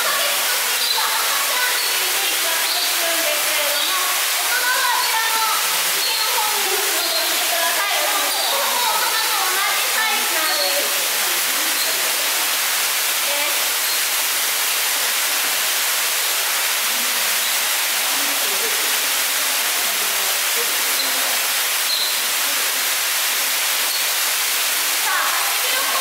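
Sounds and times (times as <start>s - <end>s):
running water hiss: 0.0s - 26.0s
faint indistinct voices: 14.8s - 23.9s.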